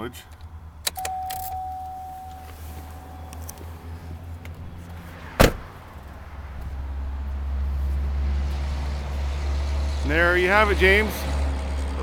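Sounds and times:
engine idling hum: 0.6s - 11.0s
car door slamming: 4.5s - 6.8s.

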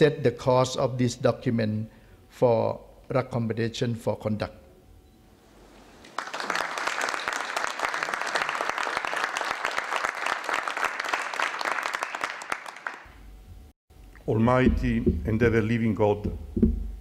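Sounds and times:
audience applauding: 6.0s - 13.1s.

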